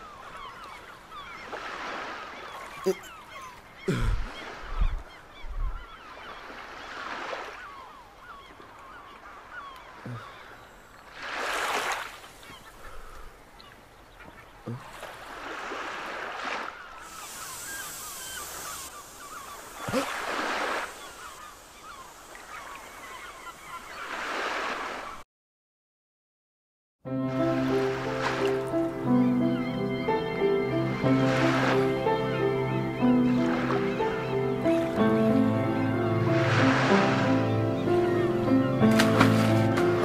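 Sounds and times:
short bird calls: 0.0 - 10.8, 16.5 - 25.2
surf washing onto beach: 15.3 - 25.1, 33.2 - 37.4.

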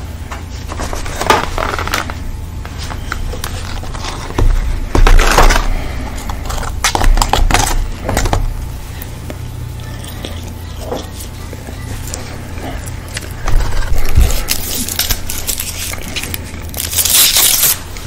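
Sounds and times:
paper packaging crinkling: 0.6 - 8.4, 9.9 - 18.0.

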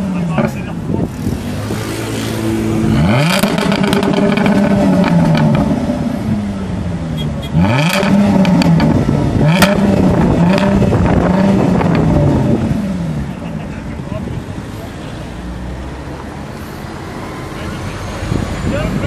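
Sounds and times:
car engine revving: 0.0 - 19.0
exhaust cracks: 0.1 - 6.4, 7.6 - 13.3.

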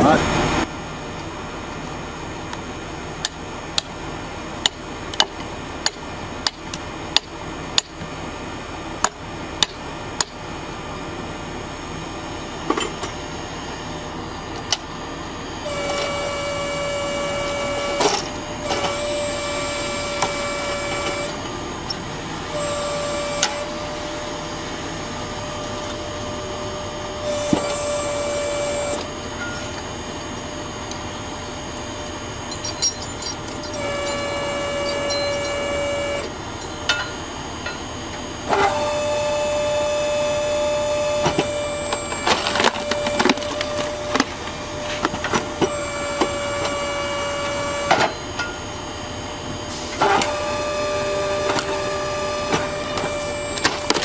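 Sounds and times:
high machine whine: 10.5 - 54.0
log splitter running: 15.6 - 32.5, 33.4 - 36.6, 38.1 - 48.2, 49.0 - 54.0.

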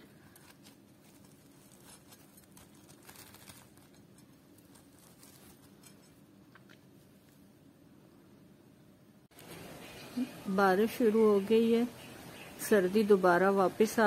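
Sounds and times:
crisp food crackling: 0.0 - 7.0
low steady hum: 0.0 - 14.0.

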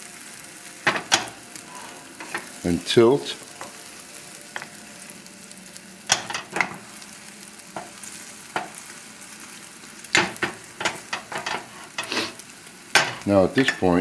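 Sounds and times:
eggs sizzling in a frying pan: 0.0 - 14.0
wooden spatula scraping: 10.2 - 14.0.

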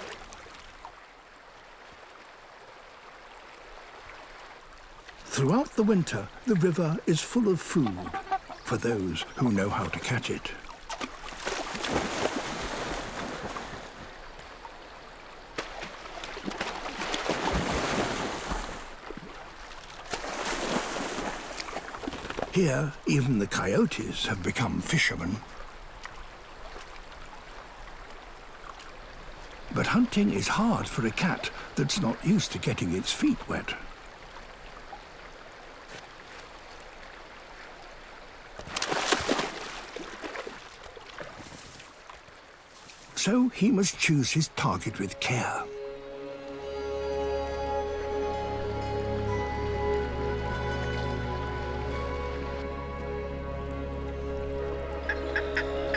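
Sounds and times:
paws splashing through shallow water: 0.0 - 5.3, 7.7 - 22.6, 25.2 - 30.0, 30.9 - 43.2
river rushing: 0.0 - 55.9
animal feet splashing water: 9.8 - 14.6, 15.2 - 22.6, 38.6 - 43.2.

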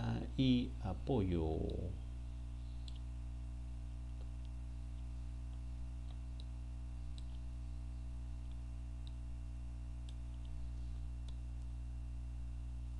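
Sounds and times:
low electrical hum: 0.0 - 12.9
computer mouse clicks: 2.7 - 3.1, 4.0 - 7.5, 10.0 - 10.6.

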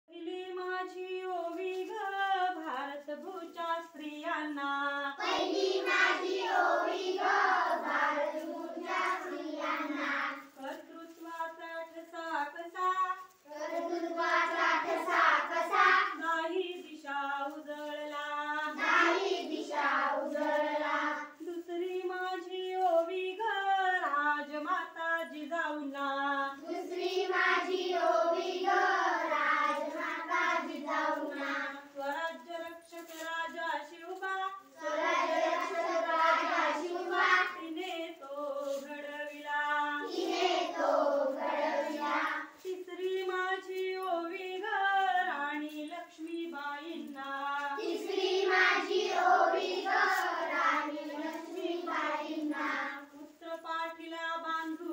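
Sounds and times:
children singing together: 5.2 - 10.6, 13.5 - 16.4, 18.7 - 21.4, 26.6 - 31.9, 34.7 - 37.9, 39.8 - 42.6, 47.6 - 53.2.

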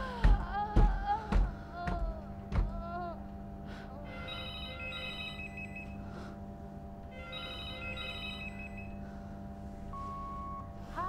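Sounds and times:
steady low hum: 0.0 - 11.0
telephone ringing: 4.2 - 6.0, 7.2 - 9.0.

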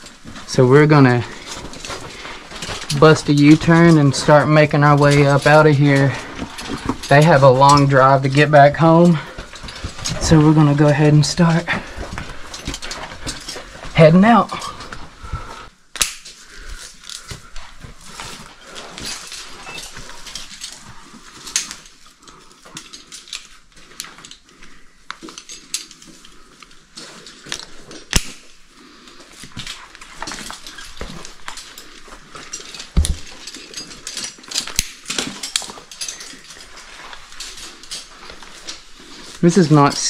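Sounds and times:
carabiners clinking: 0.0 - 15.4, 16.2 - 40.0
person breathing: 1.3 - 2.9, 11.6 - 15.7, 16.4 - 25.4.

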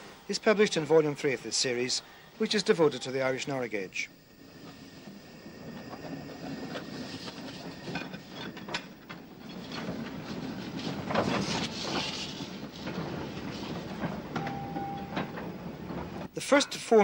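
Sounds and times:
steam locomotive moving slowly: 0.0 - 17.0
clanks and knocks over rail joints: 5.7 - 16.3.

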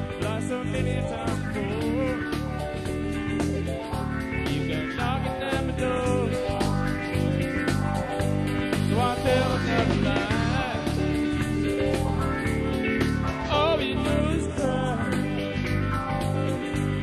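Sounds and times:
country band music: 0.0 - 17.0.

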